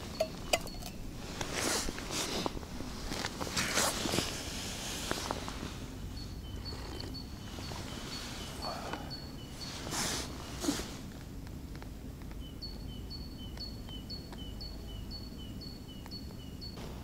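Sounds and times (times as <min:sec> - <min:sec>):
low background rumble: 0:04.2 - 0:17.0.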